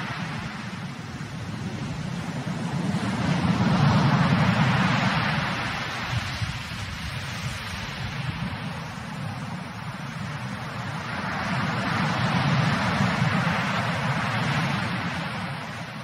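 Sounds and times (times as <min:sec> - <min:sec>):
sea surf breaking over rocks: 0:00.0 - 0:16.0.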